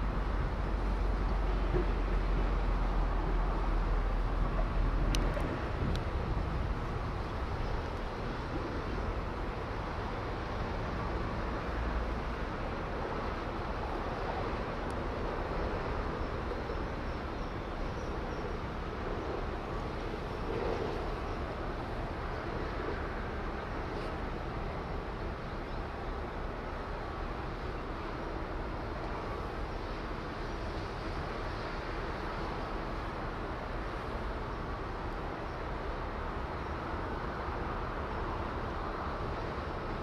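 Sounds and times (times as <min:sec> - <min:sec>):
faint clicks: 0:05.1 - 0:06.1.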